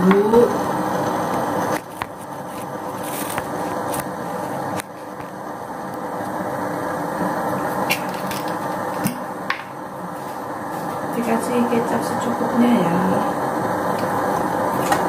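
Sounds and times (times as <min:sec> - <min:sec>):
gas stove flame rushing: 0:00.0 - 0:15.0.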